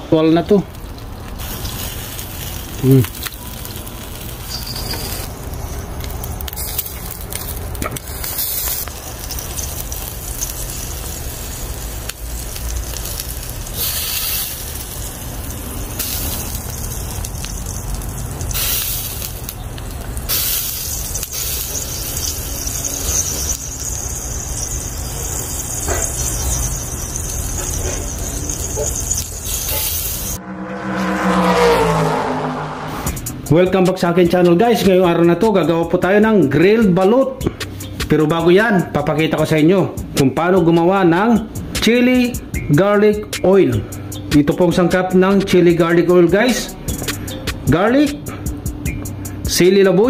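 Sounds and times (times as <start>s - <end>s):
eggs sizzling on a grill: 0.2s - 30.4s
low rumble: 27.2s - 33.6s.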